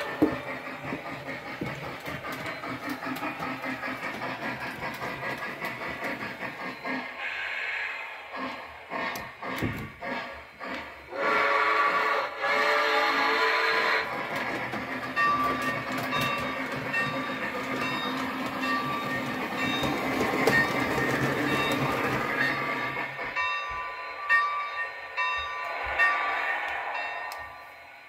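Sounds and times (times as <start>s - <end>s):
wheels clicking over track: 0.0s - 7.0s, 14.0s - 23.3s
model train steam chuffing: 0.0s - 24.2s.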